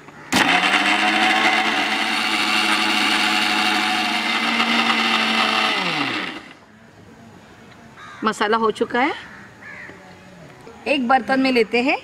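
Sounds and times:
mixer grinder running: 0.3 - 6.6.

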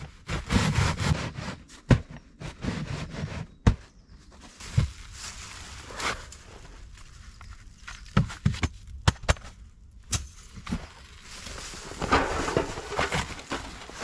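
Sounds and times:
plastic tarp rustling: 4.4 - 7.6, 10.6 - 14.0.

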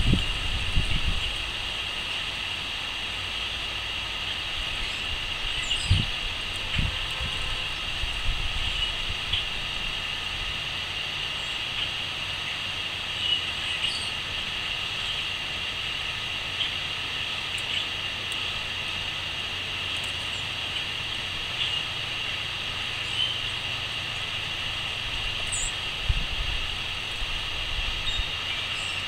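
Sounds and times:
crickets chirring: 0.0 - 29.0
bird chirps: 4.8 - 6.1, 13.2 - 14.2, 23.0 - 24.3, 25.4 - 25.8, 28.0 - 29.0.

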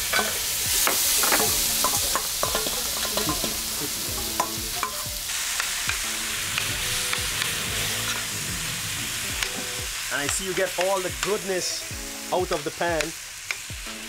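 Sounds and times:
shrimp sizzling in a pan: 0.0 - 14.0.

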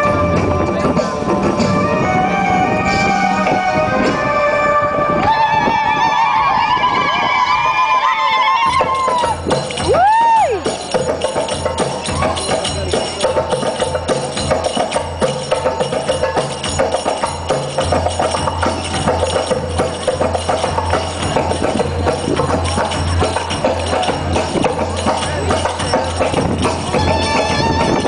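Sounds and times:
jingling percussion: 0.0 - 5.0, 6.8 - 28.0
tribal fusion dance music: 0.0 - 28.0
hand drums: 8.5 - 28.0.

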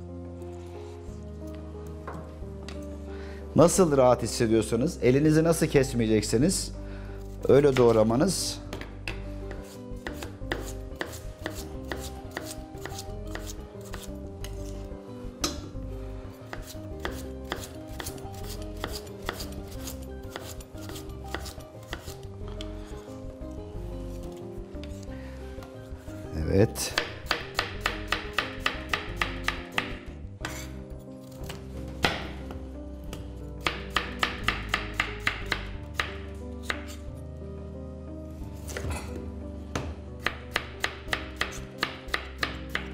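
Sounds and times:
knife chopping on plastic board: 8.7 - 14.1, 26.9 - 30.7, 31.4 - 37.0
knife slicing potatoes: 8.8 - 14.9, 16.4 - 22.3, 26.8 - 32.4, 38.6 - 39.2.

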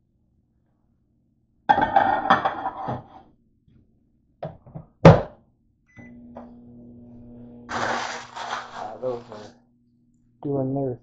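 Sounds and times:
microwave humming: 5.9 - 9.6.

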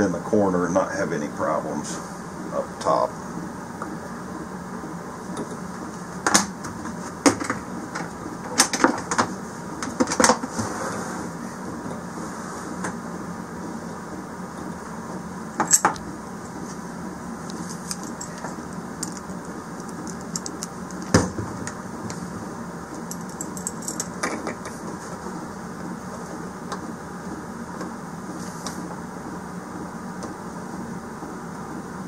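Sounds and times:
low background hum: 0.0 - 32.0
metal parts and tools clinking: 17.6 - 21.1, 23.1 - 24.6.

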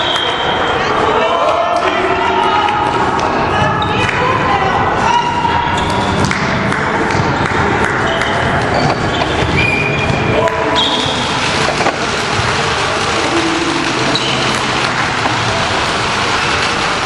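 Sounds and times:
volleyballs hit and bouncing: 5.8 - 17.0
overlapping voices: 10.2 - 17.0.

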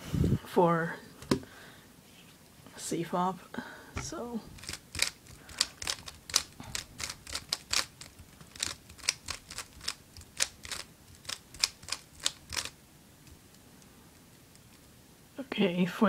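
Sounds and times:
puzzle cube clicking: 4.0 - 13.6.

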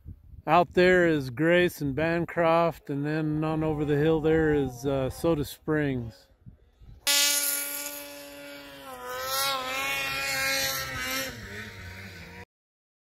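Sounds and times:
snowmobile engine at high revs: 7.0 - 12.5.

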